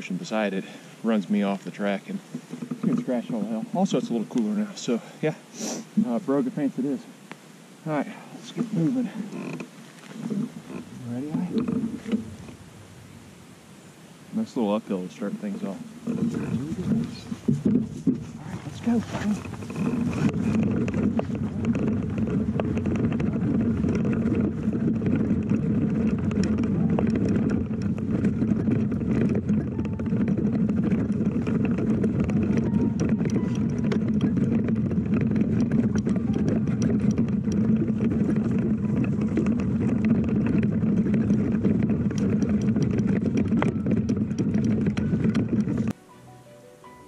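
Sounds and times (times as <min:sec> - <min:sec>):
bike tyres rumbling on dirt: 0:00.0 - 0:07.0, 0:07.8 - 0:46.0
small clicks and ticks: 0:14.4 - 0:46.0.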